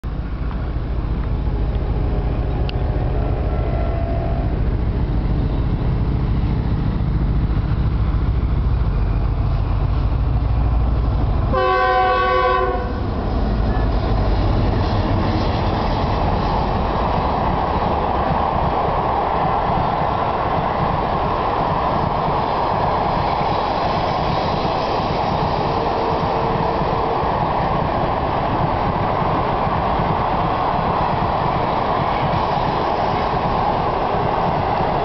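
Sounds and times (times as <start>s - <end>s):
locomotive rumble: 0.0s - 35.0s
wheels hissing on rails: 0.1s - 35.0s
train horn: 2.1s - 4.8s, 11.5s - 13.2s, 25.6s - 27.2s.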